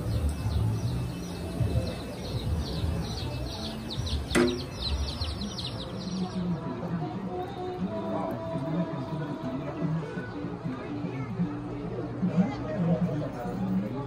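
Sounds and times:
small birds chirping: 0.0s - 6.7s.

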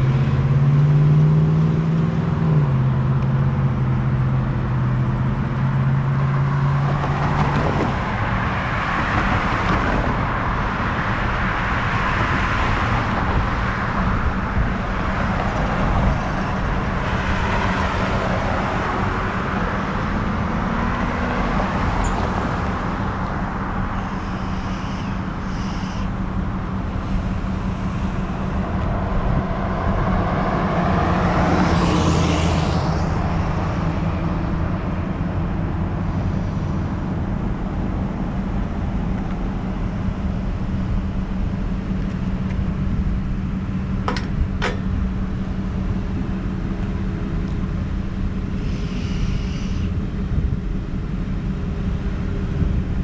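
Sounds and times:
road traffic rushing: 0.0s - 53.0s
vehicle passing: 5.8s - 38.2s.

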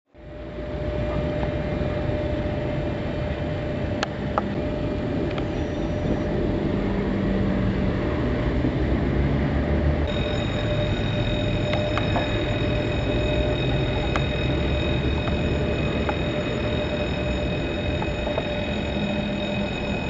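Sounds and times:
approaching locomotive: 0.2s - 20.0s
road vehicles rumbling past: 0.2s - 20.0s
higher steady tones: 10.1s - 20.0s
steady mid-pitched hum: 10.1s - 20.0s.

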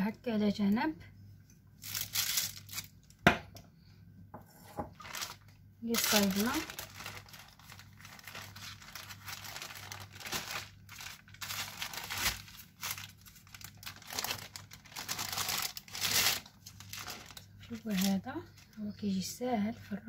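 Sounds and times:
thin wrapping sheet crinkling: 1.8s - 3.2s, 4.9s - 18.8s.

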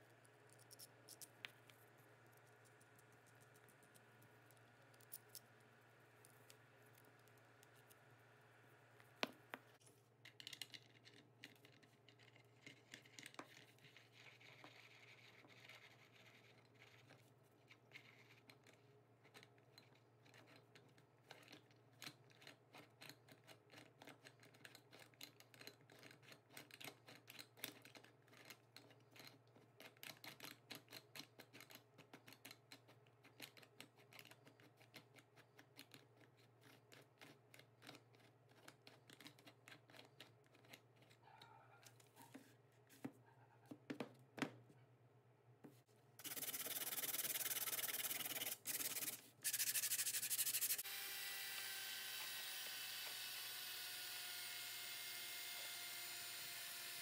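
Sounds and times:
sandpaper rubbing on wood: 46.2s - 50.8s.

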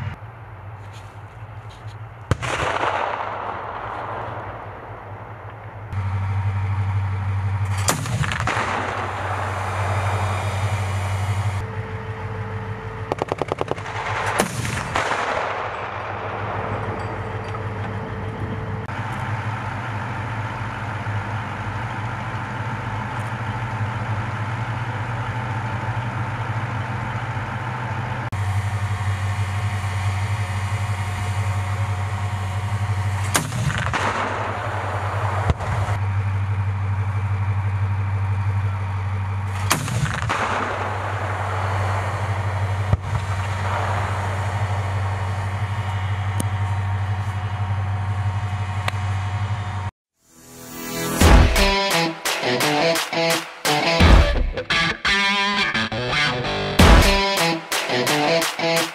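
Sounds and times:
diesel engines running: 0.0s - 58.9s
loud echoing cannon shots: 2.3s - 5.9s, 7.7s - 10.7s, 13.0s - 17.1s, 33.2s - 36.0s, 39.6s - 45.4s, 56.8s - 58.8s
rapid burst of gunfire: 13.1s - 16.6s, 56.8s - 58.9s.

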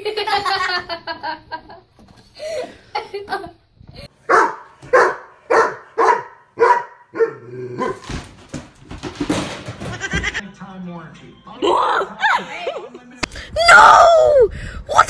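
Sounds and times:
dog barking sharply: 4.3s - 8.0s.

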